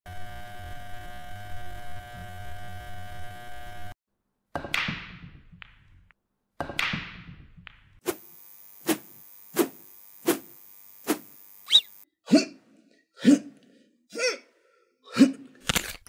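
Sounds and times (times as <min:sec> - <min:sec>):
electrical hum: 0:00.1 - 0:04.0, 0:08.1 - 0:12.0.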